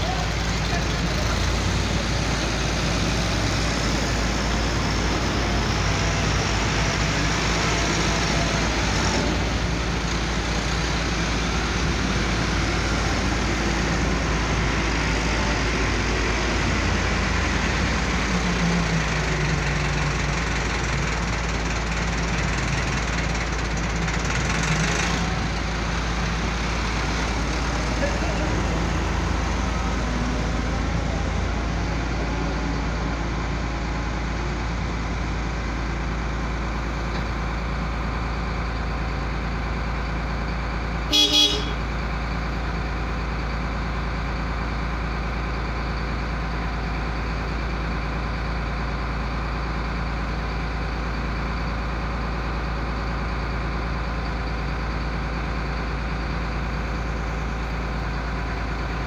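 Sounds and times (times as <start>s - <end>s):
diesel engine droning: 0.0s - 59.0s
horn toots: 41.1s - 41.8s.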